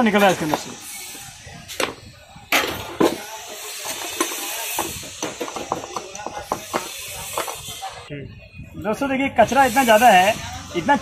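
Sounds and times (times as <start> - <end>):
metal tool scraping metal: 0.2 - 8.0.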